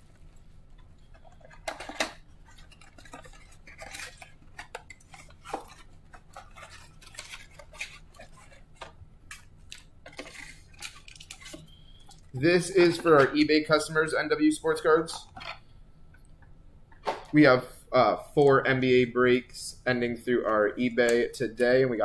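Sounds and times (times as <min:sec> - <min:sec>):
card packs rustling and crinkling: 0:00.0 - 0:15.6.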